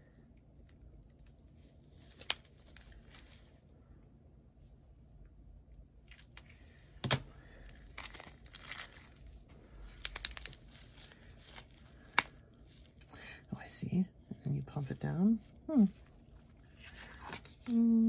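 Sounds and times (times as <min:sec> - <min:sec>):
plastic packaging crinkling: 0:01.5 - 0:03.5, 0:06.0 - 0:13.0, 0:14.8 - 0:17.8.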